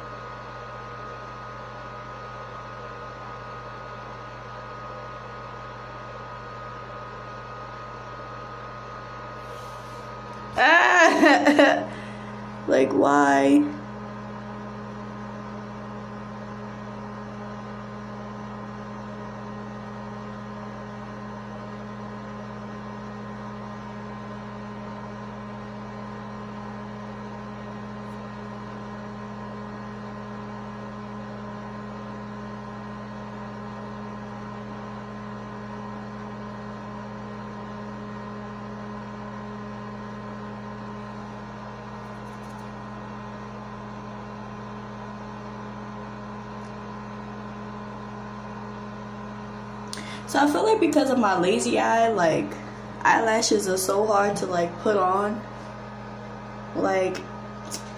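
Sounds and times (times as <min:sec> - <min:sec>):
steady tonal hum: 0:09.3 - 0:15.2, 0:49.8 - 0:57.9.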